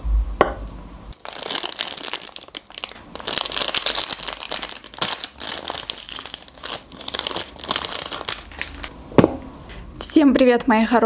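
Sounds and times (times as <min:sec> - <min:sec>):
plastic wrapper crinkling: 0:01.1 - 0:08.9.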